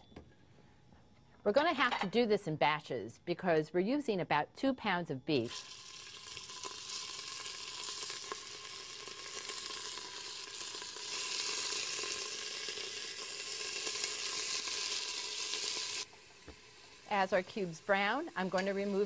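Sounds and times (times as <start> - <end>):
meat sizzling in oil: 5.5 - 19.0.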